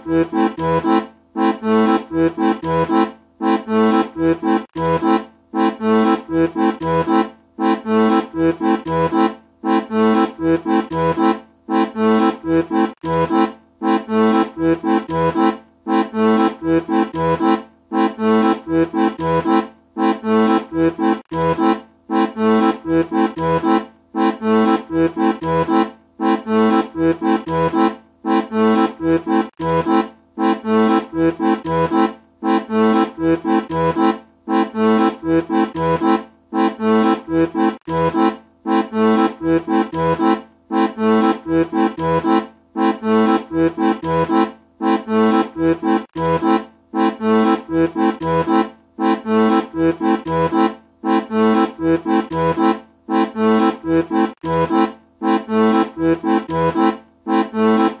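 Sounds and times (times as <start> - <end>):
accordion playing rhythmic tune: 0.0 - 58.0.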